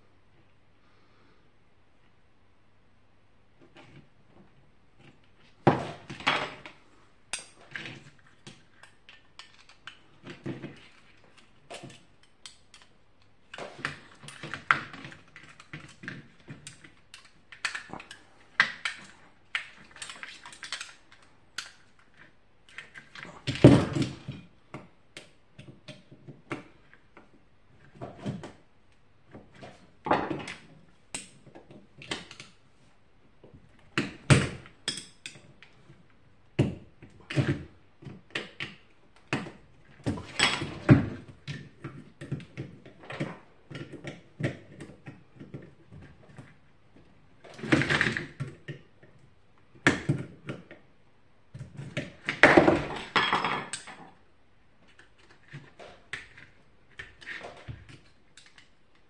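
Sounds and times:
metal and plastic parts clicking: 7.3s - 23.3s.

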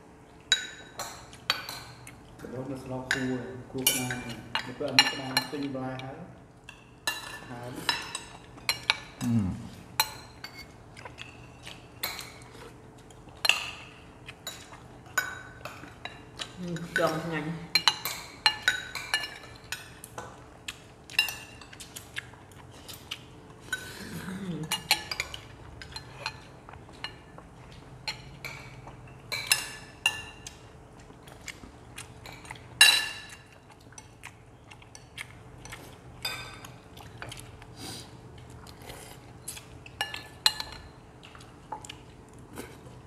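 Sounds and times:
utensils clinking on ceramic bowls: 3.0s - 6.0s, 16.8s - 20.3s, 24.6s - 27.3s, 28.0s - 30.4s
low vocal murmur: 9.2s - 9.7s.

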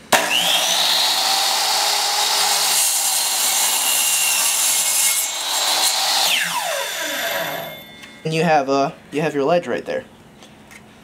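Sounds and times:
miter saw cutting wood: 0.0s - 8.1s.

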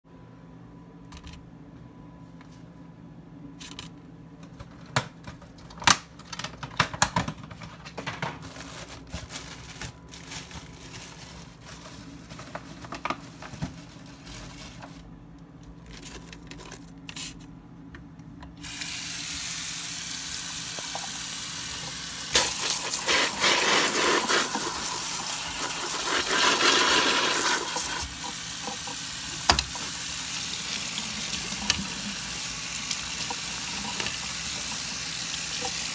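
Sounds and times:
faucet water running: 18.6s - 35.9s.

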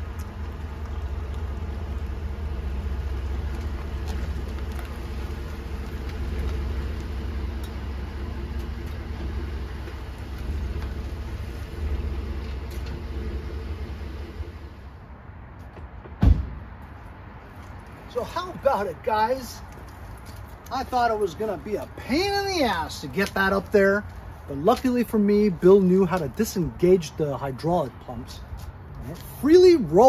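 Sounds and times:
pickup truck engine running: 0.0s - 14.9s.

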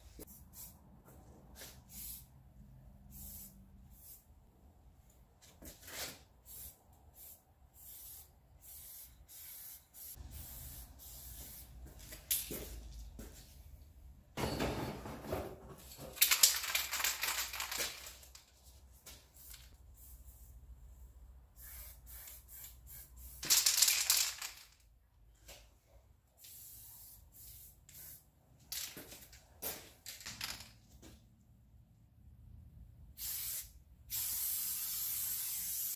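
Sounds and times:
spray paint can hissing: 0.3s - 0.8s, 1.6s - 2.3s, 3.1s - 4.2s, 6.5s - 11.8s, 21.6s - 24.6s, 26.4s - 28.2s, 33.2s - 35.9s.

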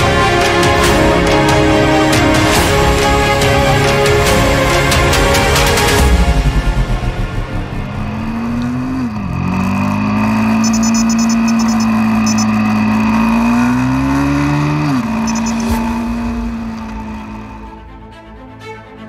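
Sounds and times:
motorcycle engine running: 0.0s - 17.9s.

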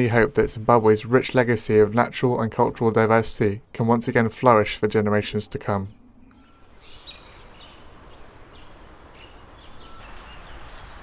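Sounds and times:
high bird chirps: 5.9s - 11.0s.

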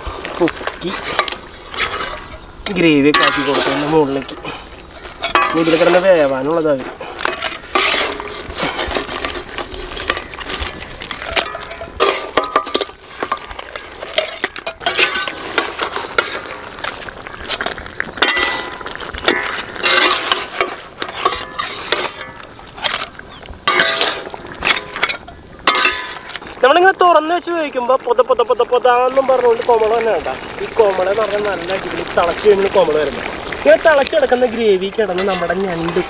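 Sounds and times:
metal ladle scraping iron pan: 0.7s - 26.6s, 35.0s - 36.0s.

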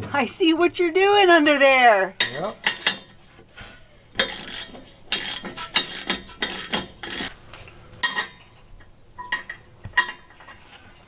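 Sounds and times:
sharp metallic knocks: 4.2s - 7.3s
socket ratchet clicking: 4.2s - 7.4s.

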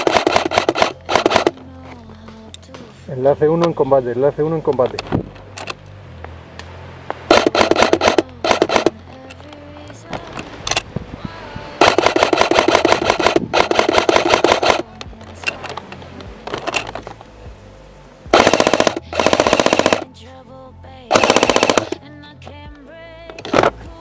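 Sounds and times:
airsoft rifle firing bursts: 0.0s - 1.6s, 7.3s - 8.9s, 11.8s - 14.8s, 18.3s - 20.1s, 21.1s - 22.0s.

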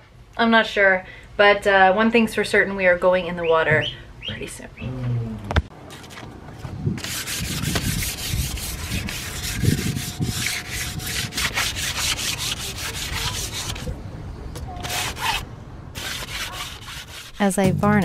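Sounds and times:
hand sanding wood: 7.0s - 13.9s, 14.8s - 15.4s, 16.0s - 17.5s.

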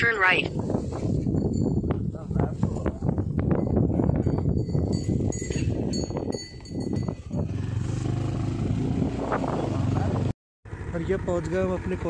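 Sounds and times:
wind noise: 0.0s - 10.3s
motorcycle engine running: 3.4s - 12.0s
cow bell clinking: 3.5s - 7.4s.

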